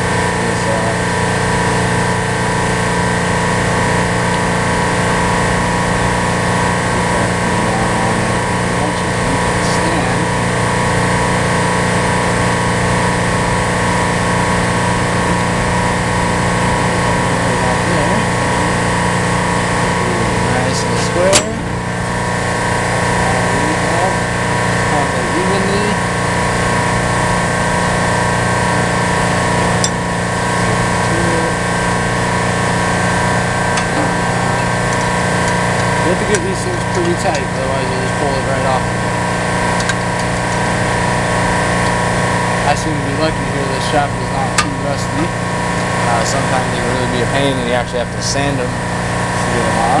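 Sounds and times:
chiller machine droning: 0.0s - 50.0s
sharp click: 21.3s - 21.6s.

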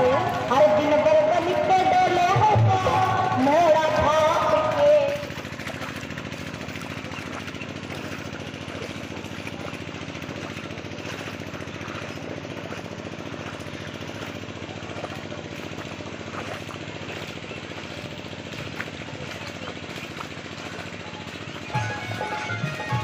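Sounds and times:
engine running with even pulsing: 0.0s - 23.0s.

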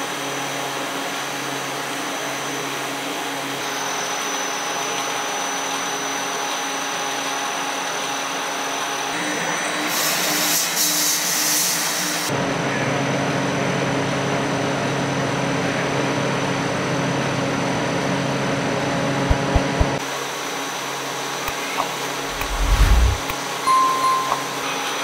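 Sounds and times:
short low thumps: 19.3s - 20.0s, 22.3s - 23.3s.

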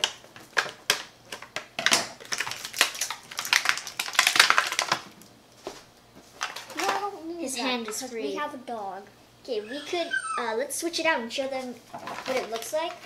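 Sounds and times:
plastic packaging crinkling: 0.0s - 8.1s, 11.6s - 13.0s.

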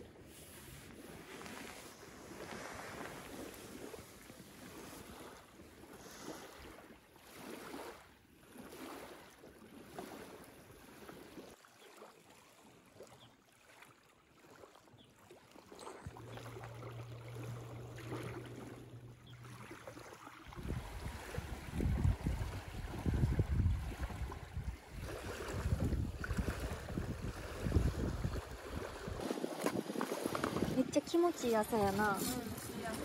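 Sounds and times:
waves lapping on gravel shore: 0.0s - 12.3s, 15.6s - 33.0s
wind buffeting microphone: 20.5s - 33.0s.

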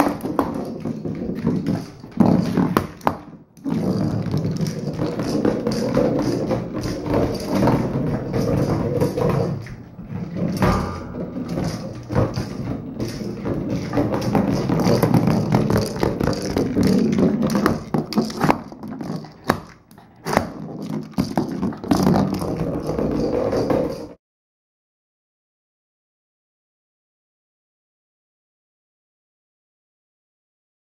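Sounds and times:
plastic ball rolling on hard floor: 0.0s - 24.2s
treats rattling inside ball: 0.0s - 24.2s.

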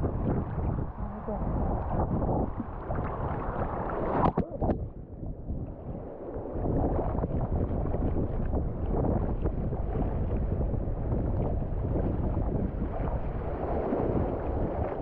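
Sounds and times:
wind buffeting microphone: 0.0s - 15.0s
sea water sloshing: 0.1s - 5.0s, 5.6s - 15.0s
sharp water splashes: 2.5s - 4.8s.

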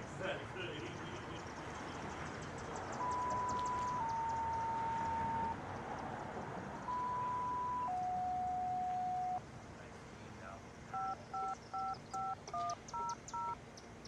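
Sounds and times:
two-tone pager alert: 3.0s - 5.6s, 6.9s - 9.4s, 11.0s - 13.6s.

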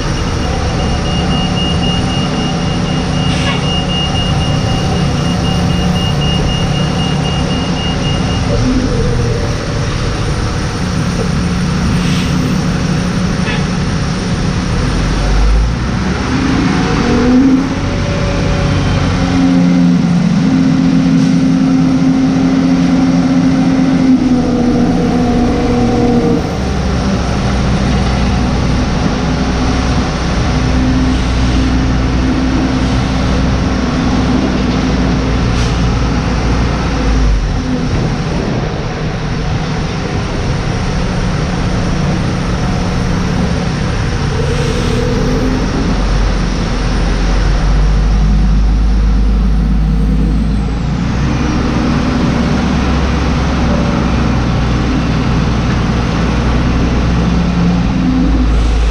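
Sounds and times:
deep rumble: 0.0s - 58.9s
tug engine drone: 0.0s - 58.9s.

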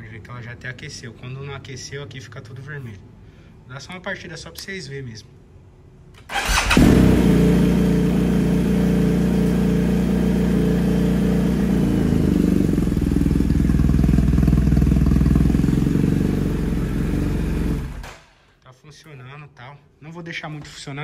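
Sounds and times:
motorcycle engine idling: 6.8s - 18.0s.

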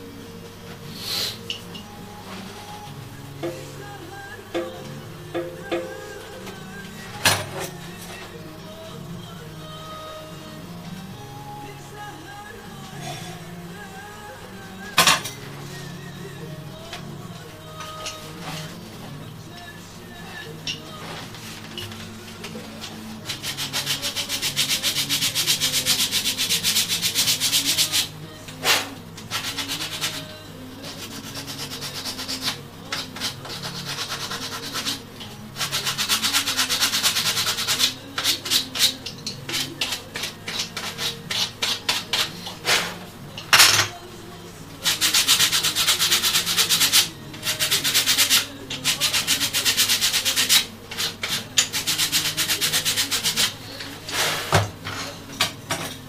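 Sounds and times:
hand sanding wood: 23.3s - 28.1s, 28.7s - 30.3s, 30.9s - 35.0s, 35.6s - 42.9s, 44.8s - 54.5s.

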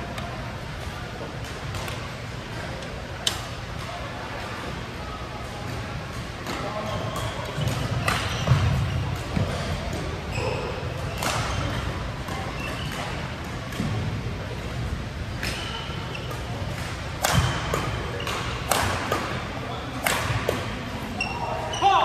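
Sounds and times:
rackets striking shuttlecock: 11.0s - 14.1s, 15.4s - 20.8s.

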